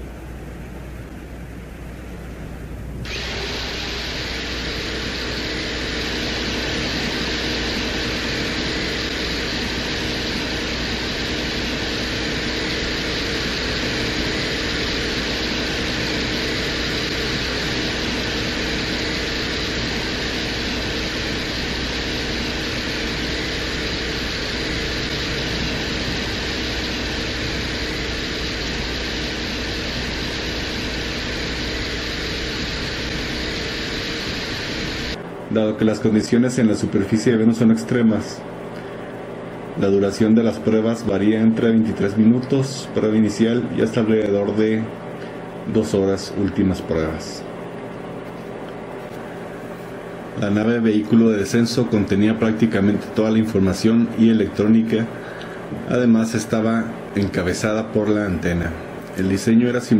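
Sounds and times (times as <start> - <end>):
constant low hum: 0.0 - 59.9
steady rushing noise: 2.8 - 35.2.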